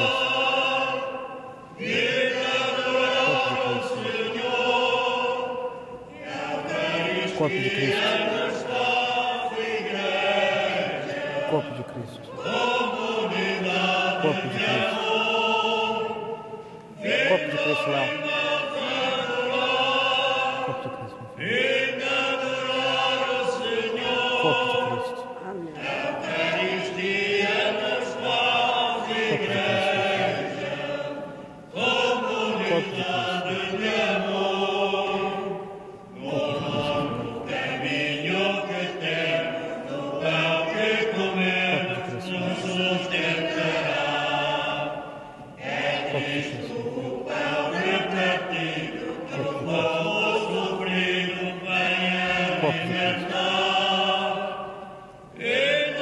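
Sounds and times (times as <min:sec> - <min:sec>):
church choir singing a hymn: 0:00.0 - 0:56.0.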